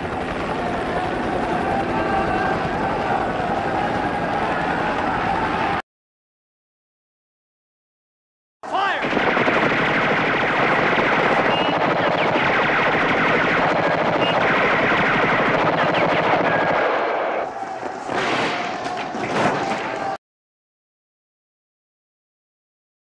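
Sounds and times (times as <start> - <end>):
automatic gunfire: 9.0 - 17.0.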